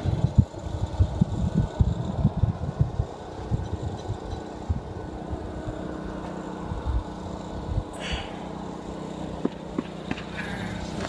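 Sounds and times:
wind buffeting microphone: 0.0s - 8.2s.

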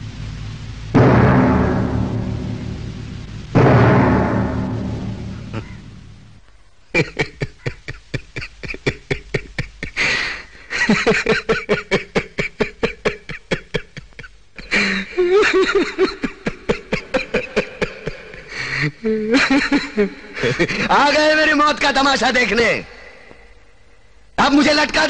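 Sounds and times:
person laughing hard: 6.9s - 20.9s.

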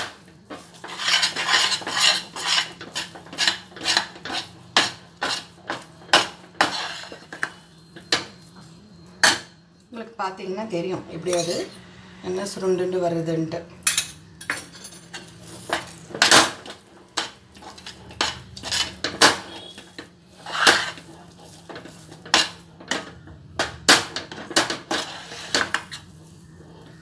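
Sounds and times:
metal spoon scraping a steel pan: 0.0s - 8.5s, 11.2s - 11.8s, 13.8s - 23.2s, 24.0s - 27.0s.

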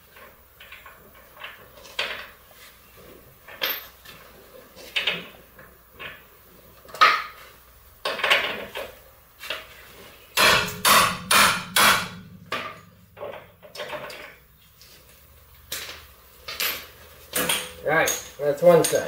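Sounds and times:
low steady hum: 10.2s - 17.9s
hammer blows on metal: 10.4s - 13.4s.

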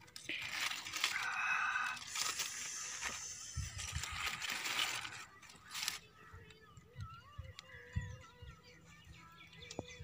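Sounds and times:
aluminium foil crinkling and tearing: 0.0s - 8.0s.

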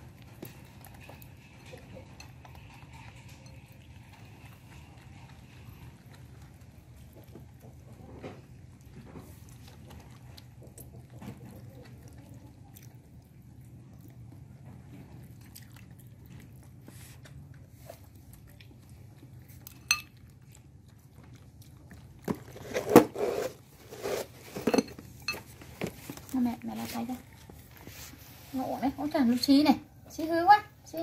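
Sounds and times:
monkeys chewing: 0.0s - 22.6s
knocks and rustles: 22.2s - 28.2s.

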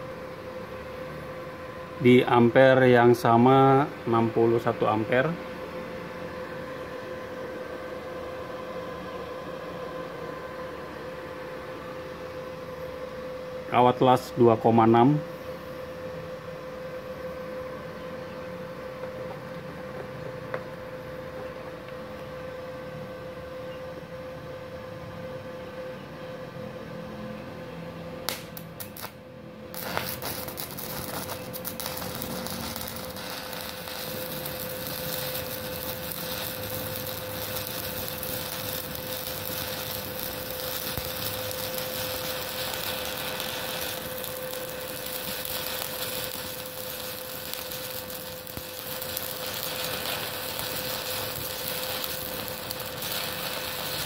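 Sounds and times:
welder hum: 28.2s - 54.0s
welding arc crackling: 28.3s - 54.0s.

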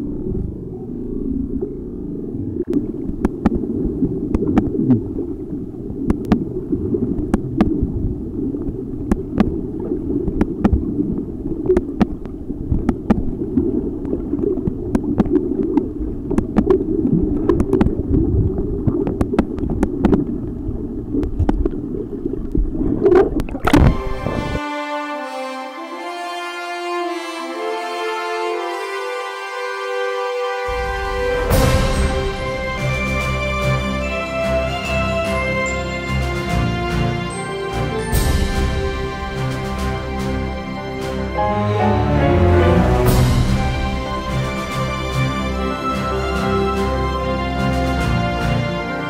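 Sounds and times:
muffled underwater rumble: 0.0s - 24.6s
music: 23.7s - 49.0s.

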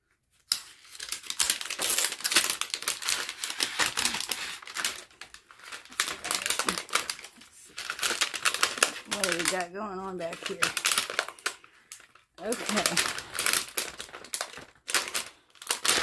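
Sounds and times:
plastic film crackling and tearing: 0.4s - 16.0s.

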